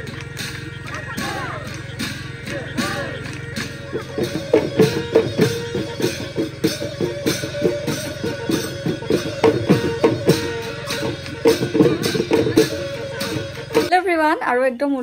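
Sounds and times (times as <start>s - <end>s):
plucked strings: 0.0s - 14.0s
quick steady drum beat: 1.1s - 14.0s.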